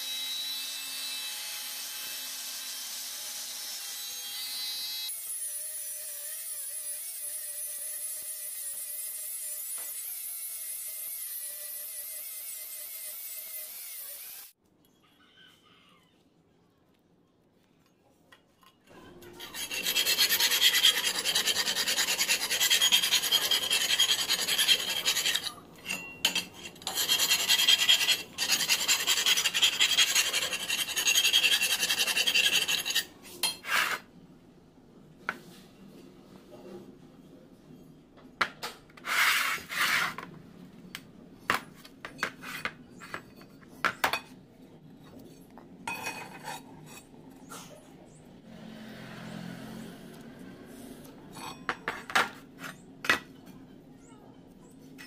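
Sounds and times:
steel file rasping on metal: 19.4s - 34.0s.

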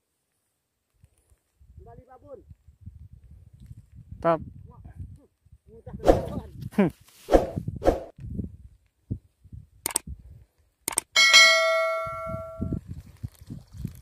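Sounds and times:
sharp clicks: 9.8s - 10.1s, 10.8s - 11.1s
notification bell ding: 11.2s - 12.6s.

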